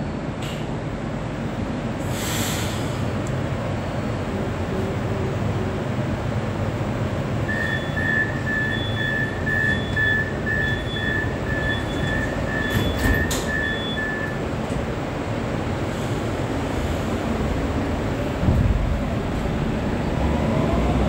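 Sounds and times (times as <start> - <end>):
metro train rumbling: 0.0 - 21.0
electronic beeps: 7.5 - 14.4.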